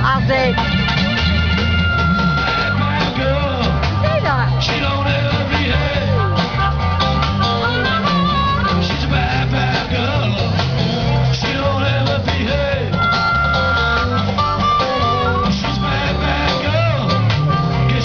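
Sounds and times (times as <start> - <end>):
drum kit: 0.0 - 18.0
guitars strumming: 0.0 - 18.0
saxophone: 0.2 - 4.6, 5.4 - 9.8, 12.8 - 18.0.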